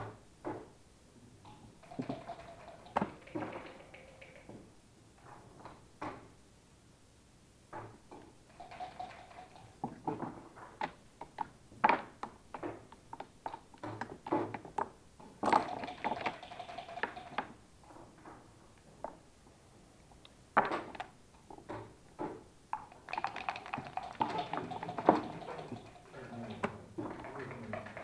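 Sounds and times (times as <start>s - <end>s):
checkers and dice clicking on board: 1.5s - 4.6s, 8.5s - 10.0s, 15.4s - 17.6s, 22.8s - 28.0s
dice rattling in a cup: 1.8s - 4.5s, 8.5s - 9.8s, 15.4s - 17.5s, 22.9s - 28.0s.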